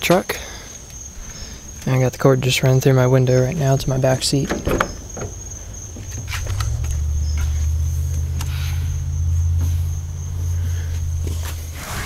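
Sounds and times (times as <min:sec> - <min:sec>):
crickets trilling: 0:00.0 - 0:12.0
vehicle engine rumbling: 0:03.0 - 0:12.0.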